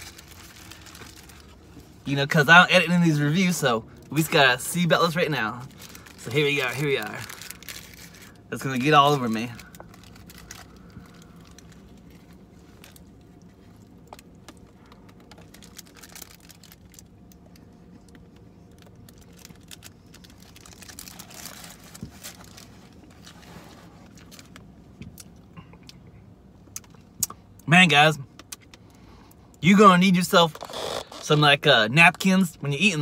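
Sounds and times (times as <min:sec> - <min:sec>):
paper wrapper crinkling: 0:00.0 - 0:01.9, 0:05.0 - 0:24.7.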